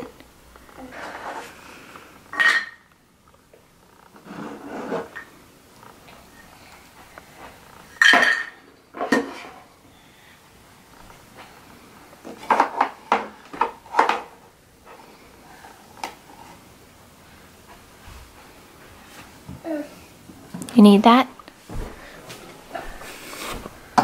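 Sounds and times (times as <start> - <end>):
plastic toys knocking and clattering: 12.2 - 14.4.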